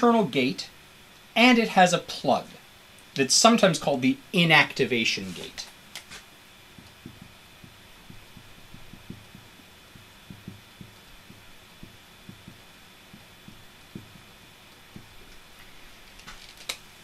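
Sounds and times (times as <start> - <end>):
faint steady hum: 0.0 - 17.0
marker tapping on whiteboard: 6.8 - 15.4.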